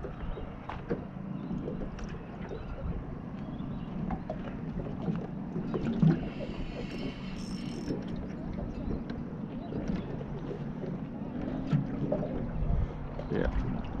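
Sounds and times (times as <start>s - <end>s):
low steady hum: 0.0s - 14.0s
water lapping against boat hull: 0.0s - 14.0s.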